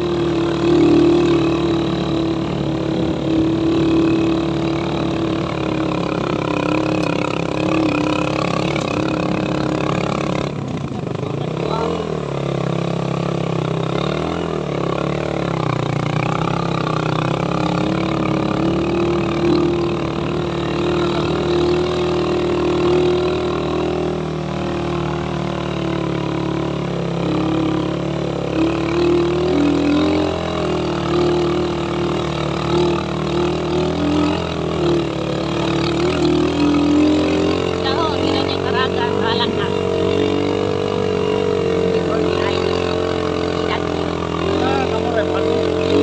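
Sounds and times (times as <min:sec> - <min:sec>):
motorcycle engine running: 0:00.0 - 0:46.0.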